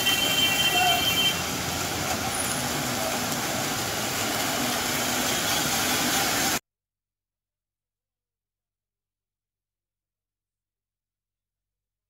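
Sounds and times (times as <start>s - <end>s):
vehicles driving through water: 0.0s - 6.6s.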